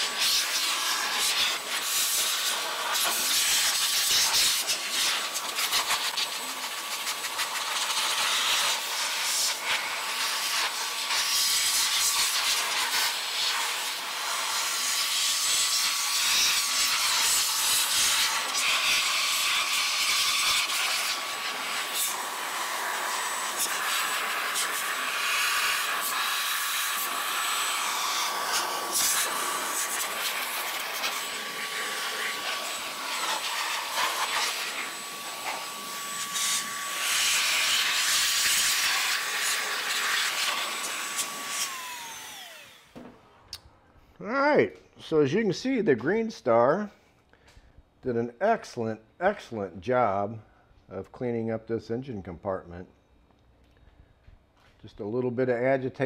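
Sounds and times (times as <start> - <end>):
air blower hissing: 0.0 - 43.1
blower whine: 0.0 - 43.7.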